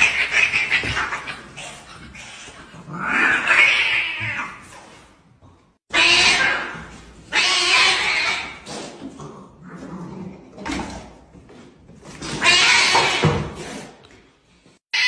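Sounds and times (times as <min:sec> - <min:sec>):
cats yowling and screeching: 0:00.0 - 0:04.9, 0:05.9 - 0:08.7, 0:12.3 - 0:13.5.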